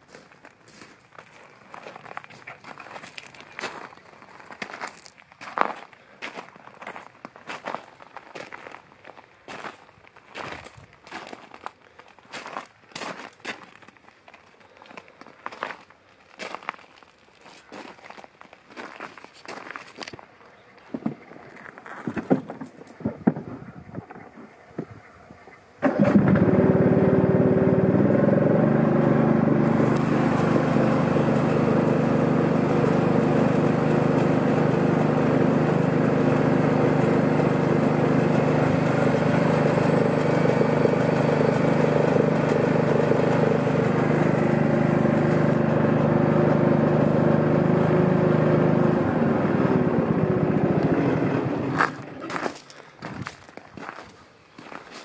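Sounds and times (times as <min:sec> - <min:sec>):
mower engine running: 0:25.8 - 0:52.3.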